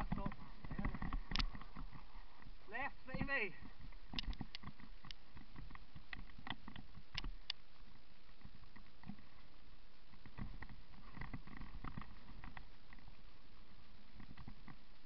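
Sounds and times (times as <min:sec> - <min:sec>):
bike rattling: 0:00.0 - 0:02.6, 0:03.5 - 0:07.5, 0:10.1 - 0:13.2
sharp clicks and knocks: 0:04.0 - 0:07.6.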